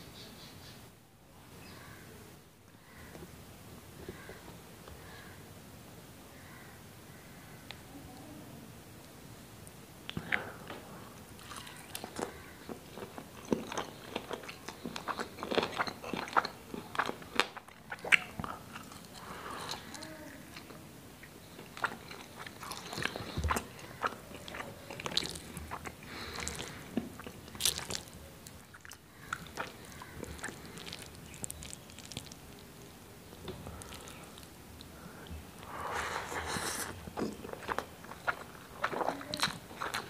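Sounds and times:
man chewing food: 10.1 - 40.0.

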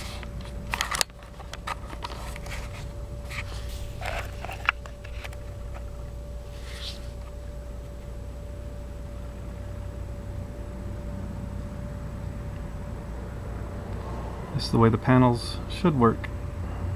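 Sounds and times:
clicks and scrapes of handling cables: 0.0 - 7.4
faint steady whine: 0.0 - 16.9
steady low rumble: 0.0 - 16.9.

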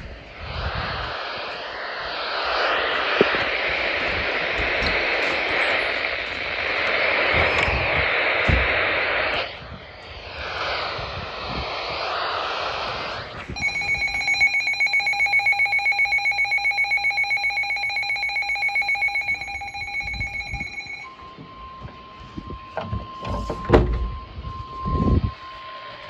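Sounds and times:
radio static hiss: 0.0 - 21.1
rapid shrill alarm beeping: 13.6 - 26.0.

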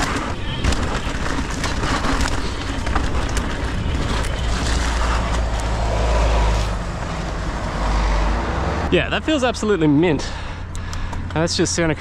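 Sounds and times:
bike clicks and rattles: 0.0 - 7.3, 10.7 - 11.6
tyres on dirt and rock: 0.0 - 7.9.

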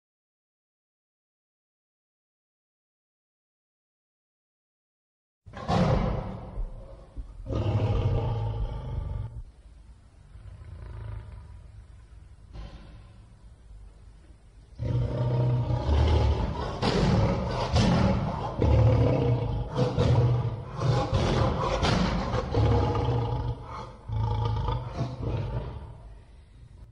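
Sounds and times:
lion roaring: 5.5 - 9.4, 10.4 - 11.6, 14.8 - 26.1.

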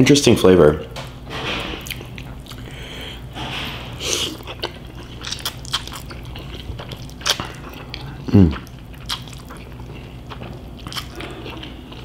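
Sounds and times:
wet chewing and lip smacks: 1.8 - 2.8, 4.1 - 12.0.

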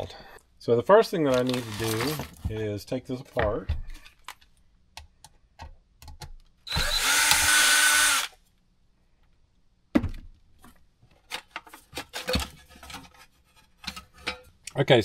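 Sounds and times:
cordless drill running: 6.7 - 8.3.

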